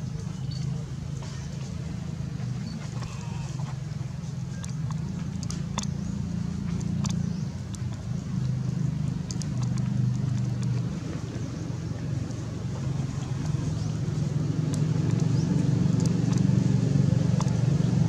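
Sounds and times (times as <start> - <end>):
faint clicks: 4.4 - 16.5, 17.3 - 17.6.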